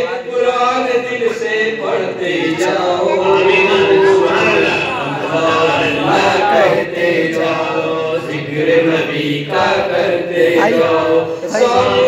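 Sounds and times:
men chanting: 0:00.0 - 0:12.0.

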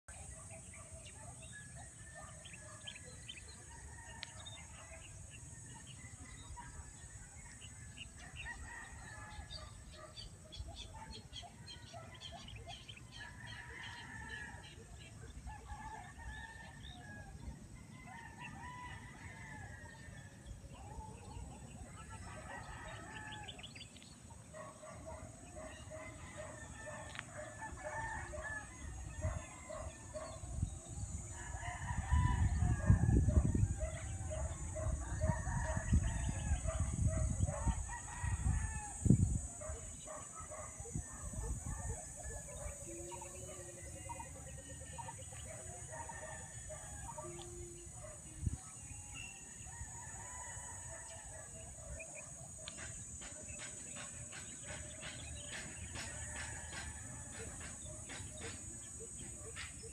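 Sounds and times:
roosters crowing: 0:13.0 - 0:14.8, 0:15.5 - 0:21.4, 0:22.1 - 0:23.8, 0:25.4 - 0:30.4, 0:31.1 - 0:59.4
wind gusts on microphone: 0:27.6 - 0:43.6.

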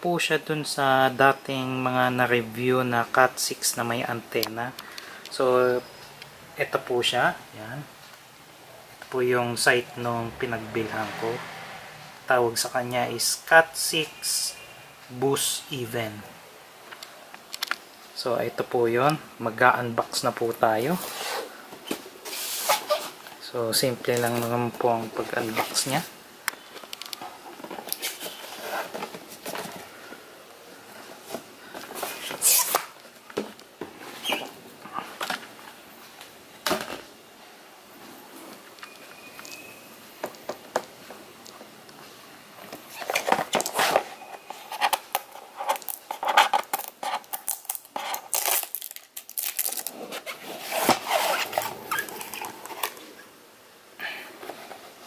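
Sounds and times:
cardboard box being opened: 0:49.5 - 0:53.0
cardboard box sliding and scraping: 0:50.2 - 0:51.9.

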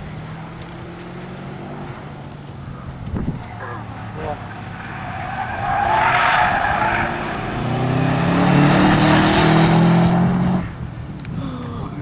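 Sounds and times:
car engine revving hard: 0:03.6 - 0:10.8.

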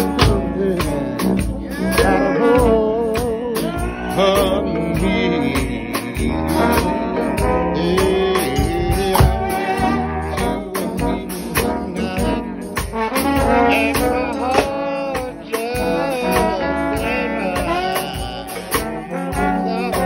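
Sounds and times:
steady drum beat: 0:00.0 - 0:20.0
trombones playing in harmony: 0:00.0 - 0:20.0.

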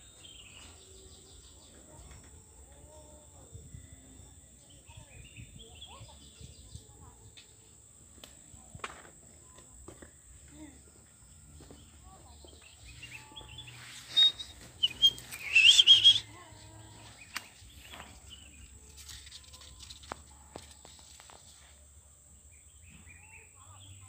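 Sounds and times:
bird chirping and warbling: 0:12.8 - 0:16.3.

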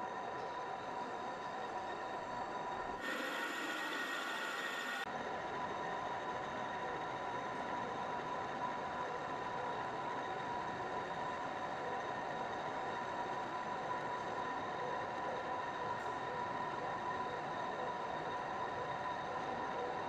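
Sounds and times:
metal lathe whining: 0:02.9 - 0:05.1.

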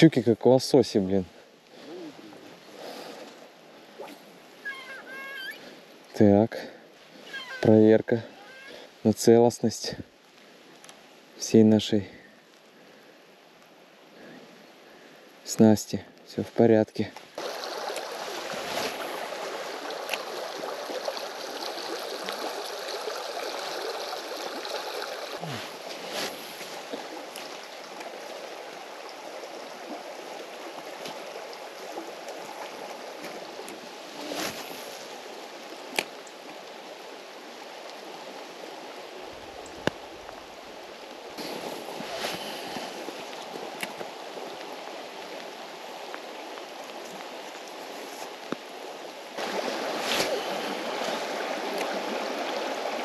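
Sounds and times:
river water rushing: 0:17.2 - 0:53.0.

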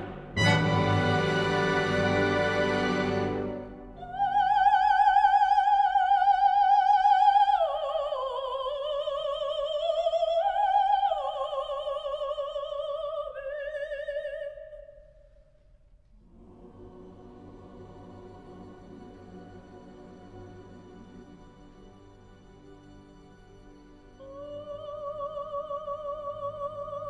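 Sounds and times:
soprano singing with vibrato: 0:00.0 - 0:14.9, 0:24.2 - 0:27.0.

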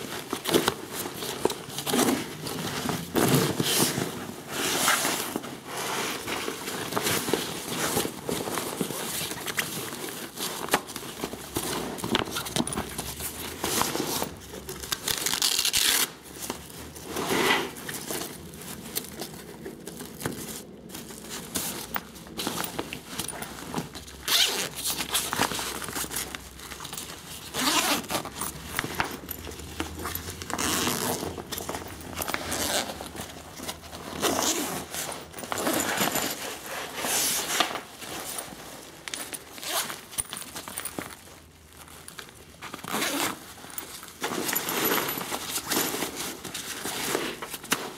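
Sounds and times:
backpack zippers rasping: 0:24.2 - 0:26.2, 0:27.5 - 0:33.3, 0:33.9 - 0:37.4, 0:39.5 - 0:40.0, 0:42.8 - 0:43.4.

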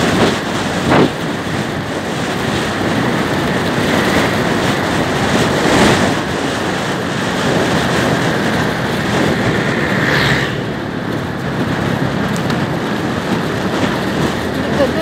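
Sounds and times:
scooter engine and tyres: 0:00.0 - 0:15.0
wind on microphone: 0:00.0 - 0:15.0.

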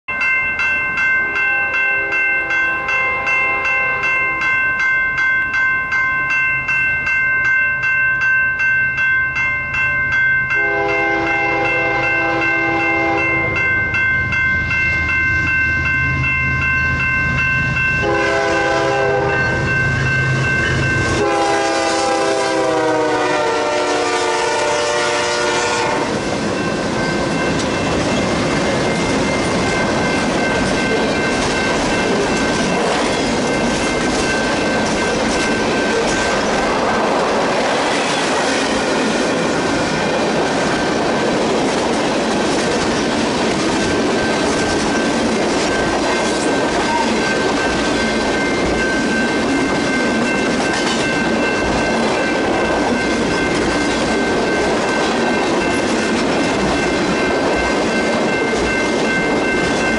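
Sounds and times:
crossing bell ringing: 0:00.0 - 0:59.9
train wheel and rail noise: 0:00.1 - 0:59.9
train air horn: 0:10.6 - 0:13.6, 0:18.0 - 0:19.4, 0:21.2 - 0:26.2.

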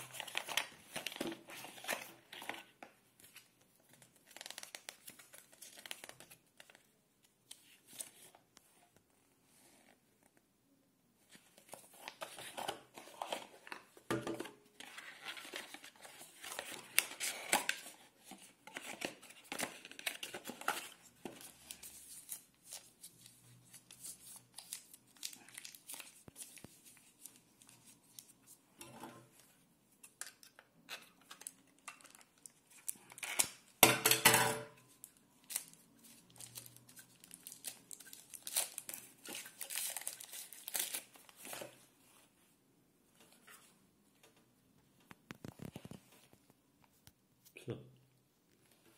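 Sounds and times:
paper wrapping rustling and tearing: 0:00.0 - 0:08.3, 0:14.8 - 0:28.4, 0:35.0 - 0:41.8.

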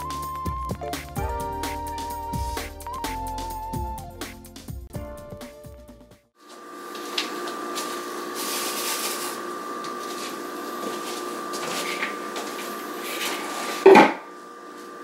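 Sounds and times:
mechanical hum with high whine: 0:06.4 - 0:15.0.

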